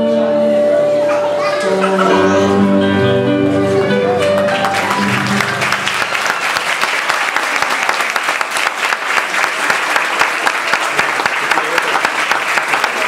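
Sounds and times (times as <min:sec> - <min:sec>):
song's last notes: 0:00.1 - 0:06.6
audience applauding: 0:03.6 - 0:13.0.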